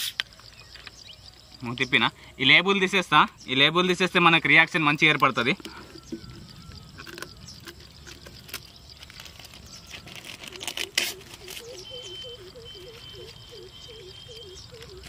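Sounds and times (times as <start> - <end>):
low repeating chirp: 5.2 - 10.1, 11.2 - 15.0
plastic label peeling and tearing: 6.2 - 11.8.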